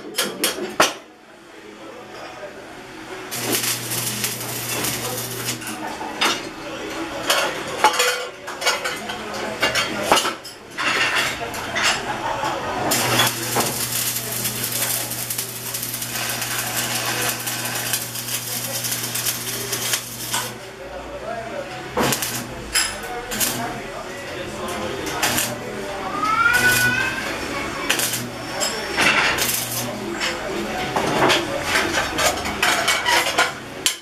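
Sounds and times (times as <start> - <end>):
welding arc crackling: 3.3 - 5.9, 12.9 - 20.7, 22.0 - 23.9, 24.5 - 30.4.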